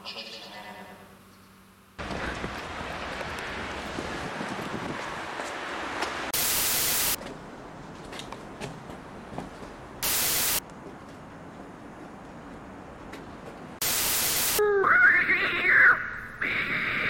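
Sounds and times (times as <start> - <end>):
loud tv static hissing: 6.4 - 7.2, 10.0 - 10.6, 13.8 - 14.6.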